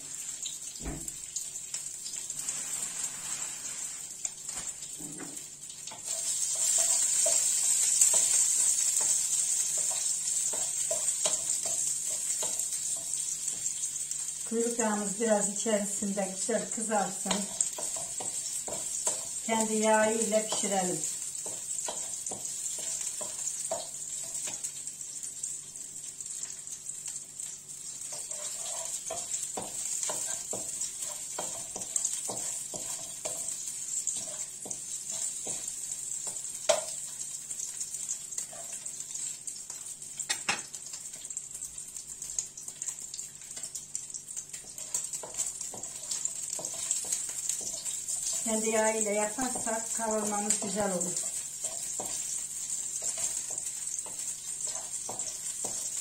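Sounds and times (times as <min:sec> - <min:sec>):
fat sizzling in a pan: 0:00.0 - 0:56.0
wooden spoon knocking a pan: 0:21.4 - 0:24.6, 0:28.2 - 0:33.6, 0:34.2 - 0:35.7, 0:40.3 - 0:40.7, 0:44.7 - 0:48.4, 0:49.3 - 0:52.4, 0:53.0 - 0:56.0.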